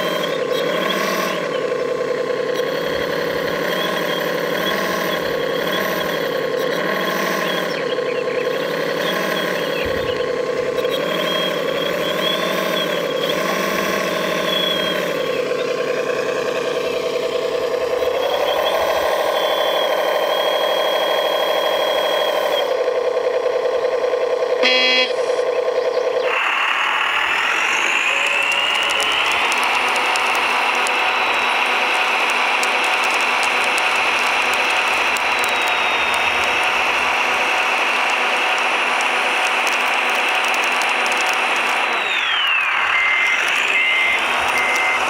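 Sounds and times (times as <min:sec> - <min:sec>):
mechanical whirring: 0:00.0 - 0:45.0
simulated diesel engine revving: 0:00.0 - 0:45.0
thin rising whine: 0:07.3 - 0:45.0
short horn toot: 0:24.6 - 0:25.3.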